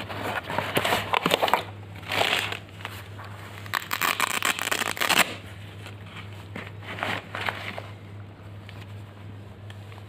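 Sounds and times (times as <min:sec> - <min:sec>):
cardboard box rustling and scraping: 0:00.0 - 0:02.5
steady low hum: 0:00.0 - 0:10.0.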